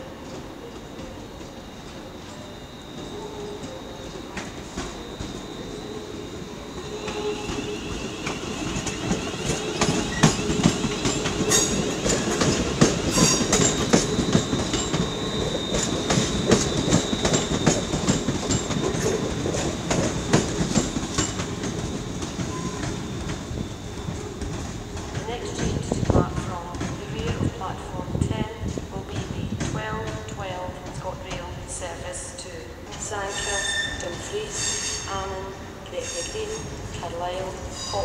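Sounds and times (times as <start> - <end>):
train rumble: 0.0 - 38.0
high wheel squeal: 2.2 - 24.7, 33.3 - 35.1, 37.7 - 38.0
train wheels clattering: 6.7 - 27.6.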